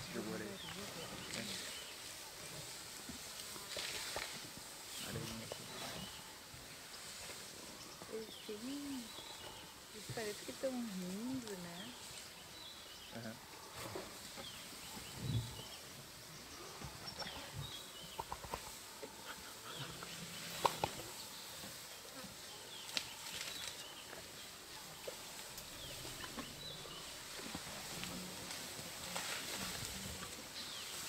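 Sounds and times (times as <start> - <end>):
snaps and rustles: 3.3 - 4.5, 20.5 - 21.1, 22.8 - 24.3.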